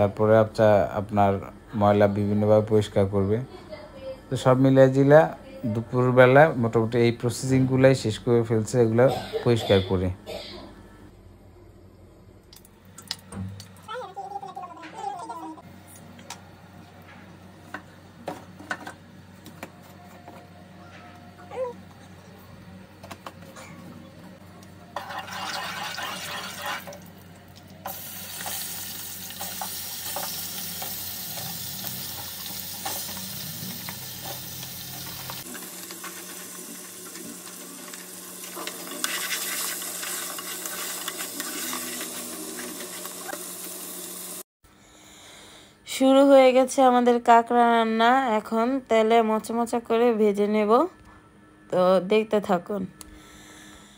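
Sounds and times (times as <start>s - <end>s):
crab sizzling in hot oil: 25.0s - 44.5s.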